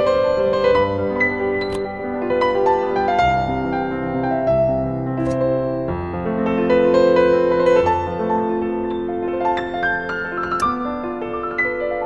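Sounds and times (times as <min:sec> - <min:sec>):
soft piano music: 0:00.0 - 0:12.0.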